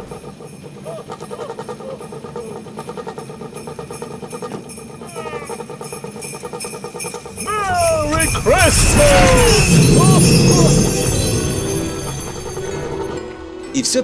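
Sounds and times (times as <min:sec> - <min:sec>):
sleigh bells jingling: 0:00.0 - 0:14.0.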